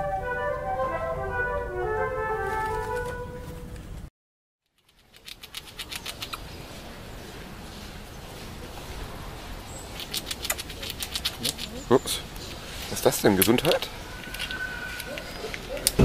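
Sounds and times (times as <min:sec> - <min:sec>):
soft flute music: 0:00.0 - 0:03.8, 0:14.0 - 0:15.8
squirrel gnawing nut: 0:04.7 - 0:06.5, 0:09.8 - 0:16.0
faint outdoor hiss: 0:04.7 - 0:16.0.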